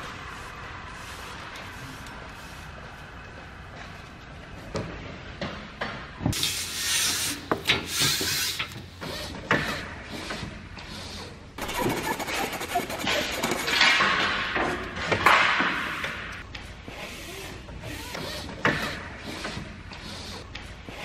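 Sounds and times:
rasping scrapes on wood: 11.6 - 13.9.

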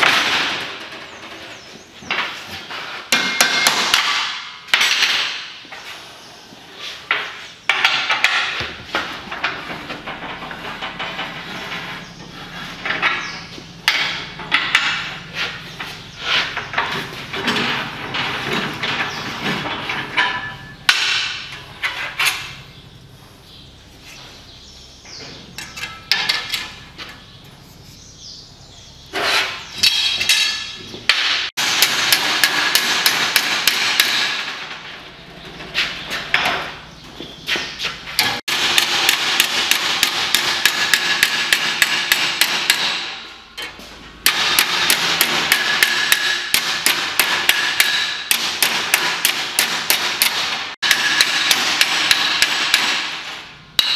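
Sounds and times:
hammer striking sheet steel: 3.0 - 5.6, 29.3 - 34.8, 38.2 - 43.6, 44.2 - 53.9.

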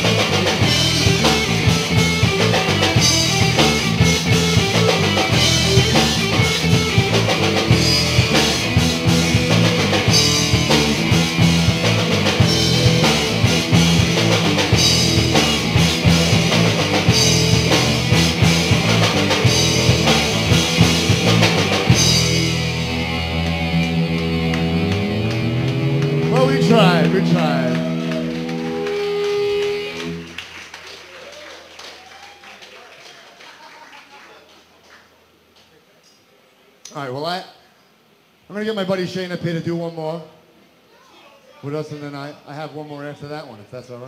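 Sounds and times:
drum kit: 0.0 - 30.4
electric guitars: 0.0 - 30.6.

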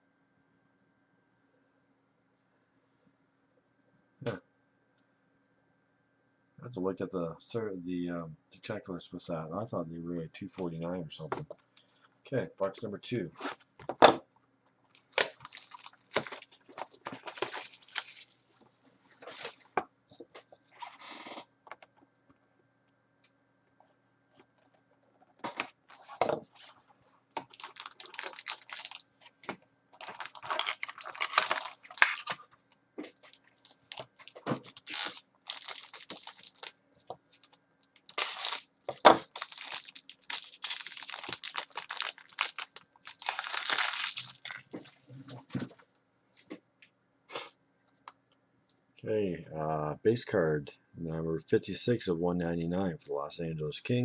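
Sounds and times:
wrapping torn and crinkled: 14.8 - 18.6, 19.2 - 19.7, 25.5 - 29.4, 30.0 - 32.6, 33.2 - 36.7, 37.3 - 45.1.

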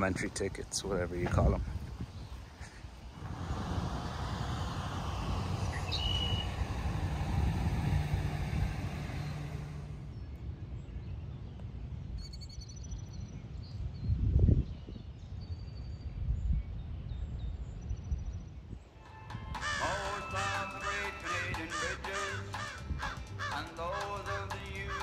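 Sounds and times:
low rumbling noise: 1.5 - 11.5
faint high bird chirps: 5.7 - 6.6, 12.2 - 19.3.

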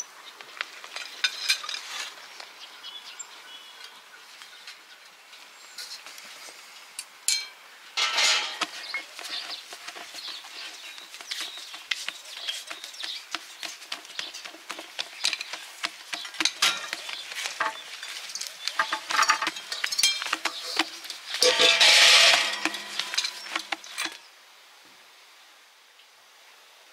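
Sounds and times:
hands patting dough on board: 8.6 - 21.4.

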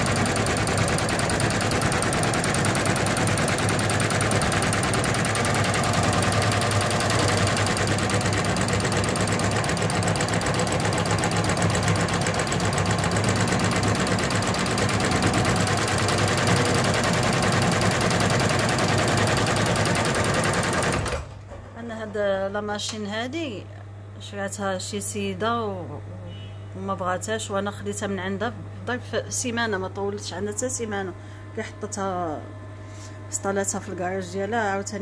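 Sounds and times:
embroidery machine clattering: 0.0 - 21.3.

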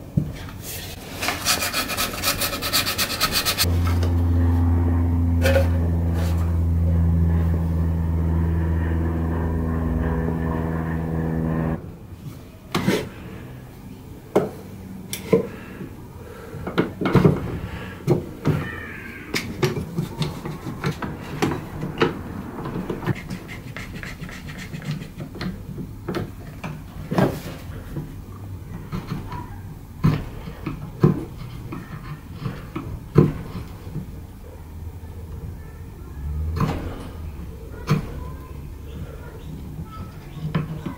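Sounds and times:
motor hum: 2.9 - 12.0.

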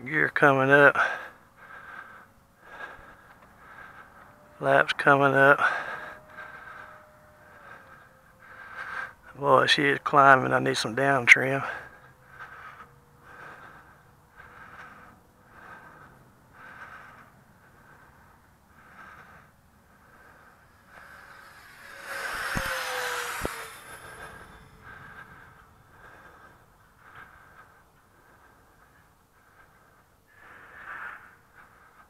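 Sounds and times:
model jet fan whine: 0.1 - 30.9
person breathing: 0.9 - 4.6, 5.6 - 9.4, 11.6 - 32.0.

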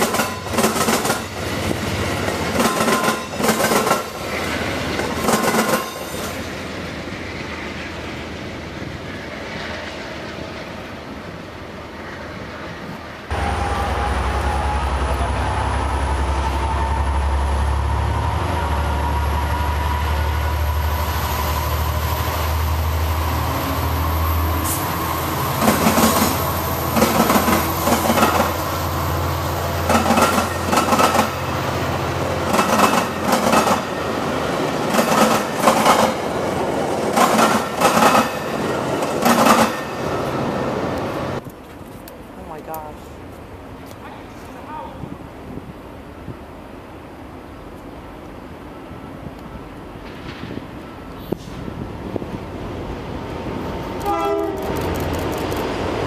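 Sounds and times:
train wheels clicking over rail joints: 0.0 - 6.4, 29.8 - 31.5, 32.4 - 33.9
diesel locomotive engine drone: 0.0 - 56.0.

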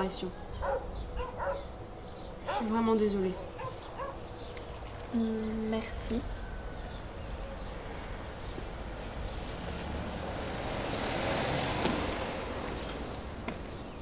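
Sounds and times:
car passing by: 6.8 - 14.0.

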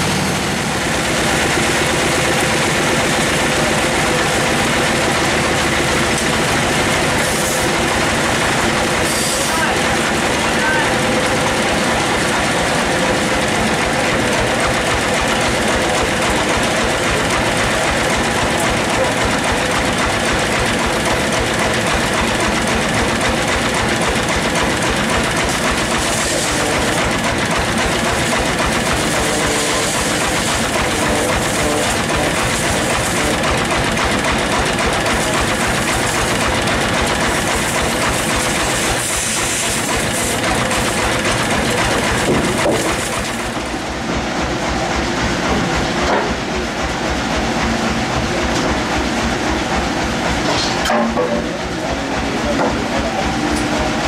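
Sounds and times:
band saw running: 0.0 - 54.0
saw blade hissing through log: 7.2 - 7.8, 9.0 - 9.6, 25.8 - 27.1, 28.0 - 33.5, 37.2 - 41.3.

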